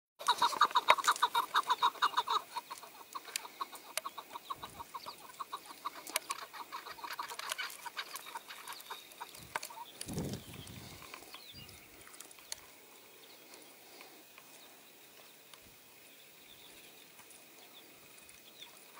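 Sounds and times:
partridge clucking calls: 0.2s - 12.8s.

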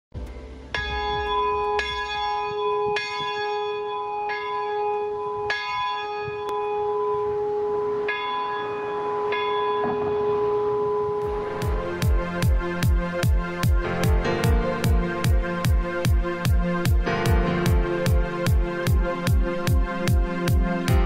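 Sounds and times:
church bell ringing: 0.7s - 15.4s.

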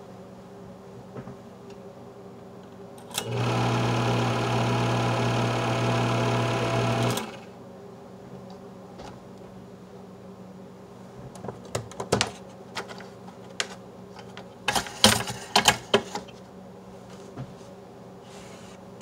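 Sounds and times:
projector motor whirring: 3.1s - 7.5s.

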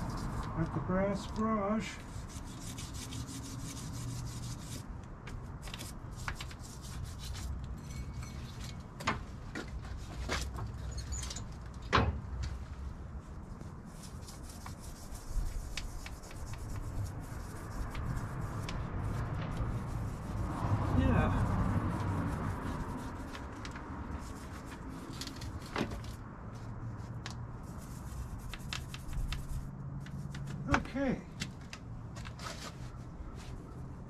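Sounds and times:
wire brush scrubbing metal: 0.0s - 4.9s, 13.9s - 25.7s.

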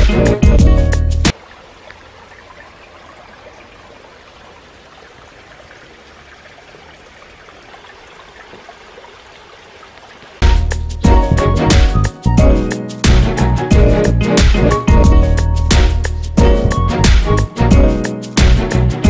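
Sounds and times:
stream trickling over stones: 1.3s - 11.0s.

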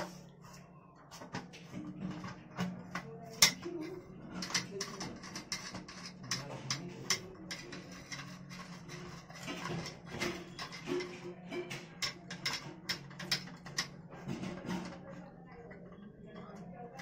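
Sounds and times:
screwdriver clicking and scraping metal: 2.2s - 3.7s, 4.4s - 13.9s.

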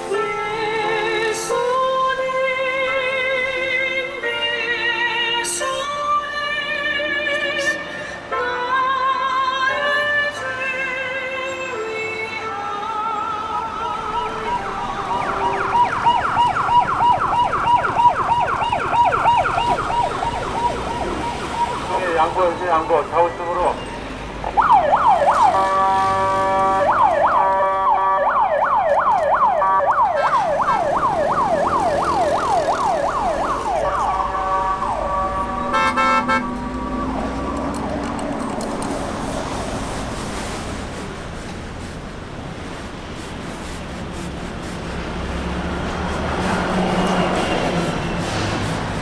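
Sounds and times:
emergency siren yelping: 14.2s - 23.8s, 24.4s - 38.2s.

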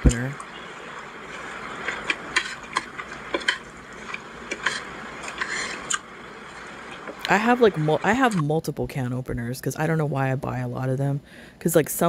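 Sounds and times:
person chewing food: 0.4s - 7.3s.

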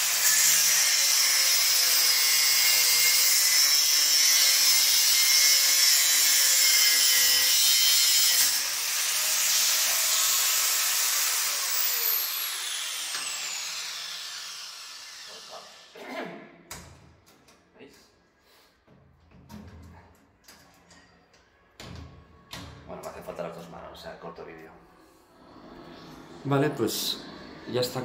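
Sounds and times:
angle grinder cutting steel: 0.0s - 16.0s.

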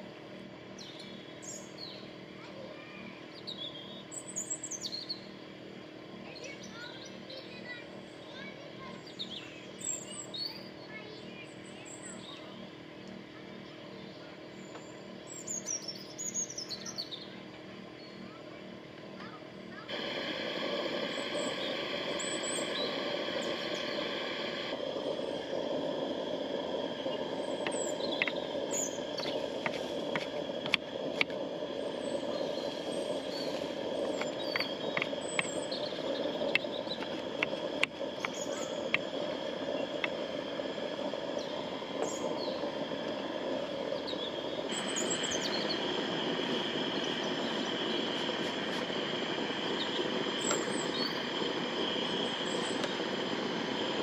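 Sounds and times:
steady rushing noise: 19.9s - 54.0s
sharp clicks: 27.2s - 31.4s, 33.1s - 42.4s.

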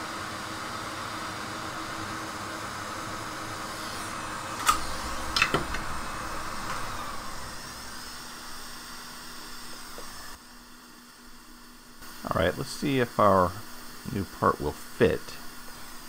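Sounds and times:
fan-like whir: 0.0s - 16.0s.

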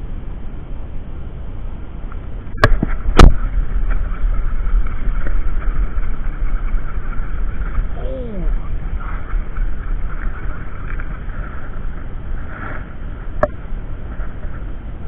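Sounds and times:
wind noise on microphone: 0.0s - 15.0s
camera handling rumble: 2.2s - 7.9s
sharp knocks on camera: 2.6s - 3.4s.

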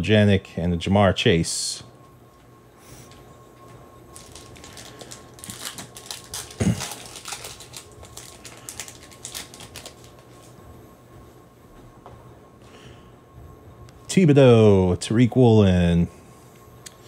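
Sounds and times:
cards clicking and rustling: 4.2s - 10.5s.

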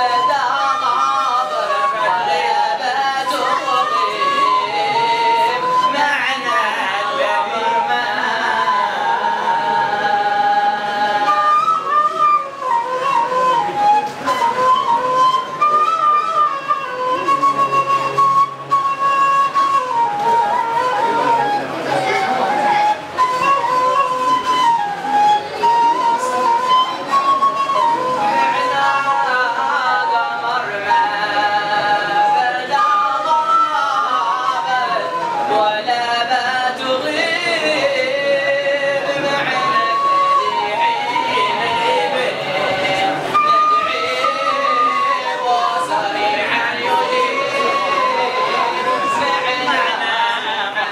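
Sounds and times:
solo voice chanting: 0.0s - 13.7s, 28.0s - 50.9s.

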